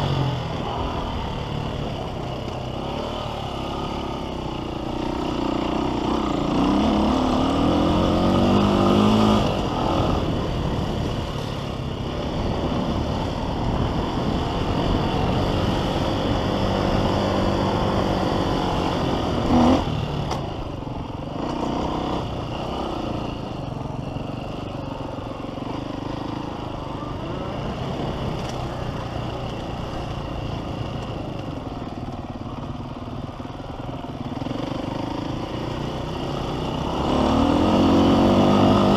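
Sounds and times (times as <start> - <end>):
motocross bike engine revving: 0.0 - 20.5, 21.2 - 23.6, 34.2 - 38.9.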